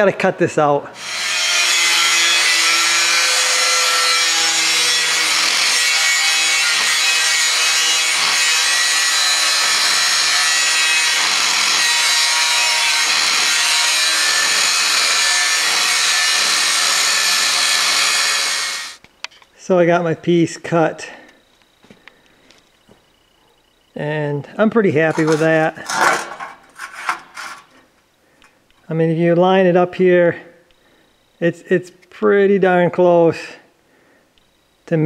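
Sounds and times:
angle grinder cutting metal: 0:01.0 - 0:19.0, 0:25.0 - 0:27.7.

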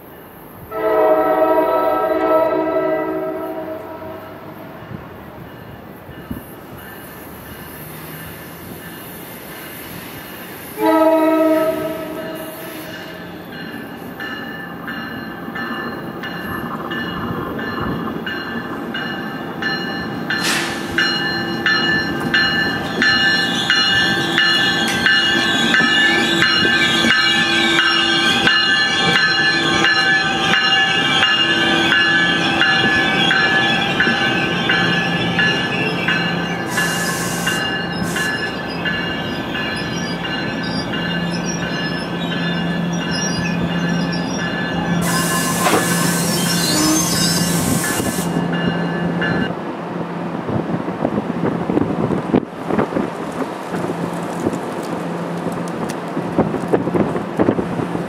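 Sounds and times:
train horn blast: 0:00.7 - 0:04.5, 0:10.7 - 0:13.2, 0:45.0 - 0:48.2
train wheels squealing: 0:06.1 - 0:10.8, 0:11.5 - 0:49.5.

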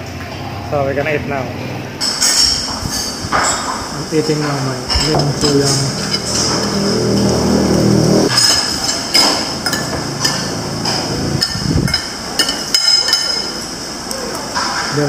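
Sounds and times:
cutlery clinking on ceramic plate: 0:04.4 - 0:06.8, 0:08.3 - 0:13.6.

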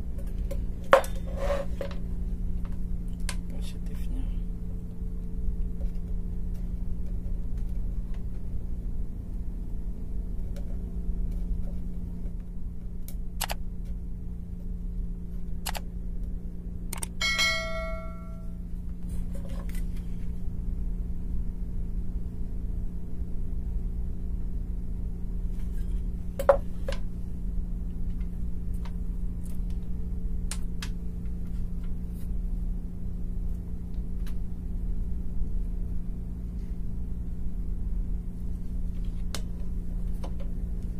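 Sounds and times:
steady low hum: 0:00.0 - 0:40.9
short metallic ring: 0:17.2 - 0:18.6.

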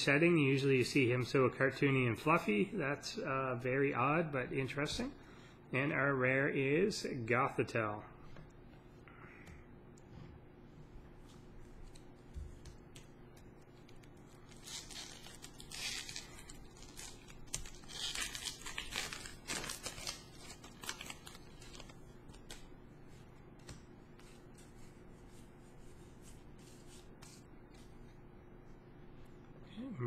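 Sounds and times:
foil wrapper tearing and crinkling: 0:13.8 - 0:22.6.

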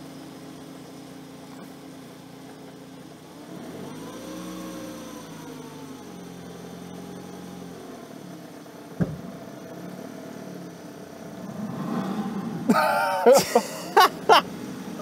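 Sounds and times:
car engine running at low revs: 0:00.0 - 0:15.0
knock: 0:09.0 - 0:09.2.

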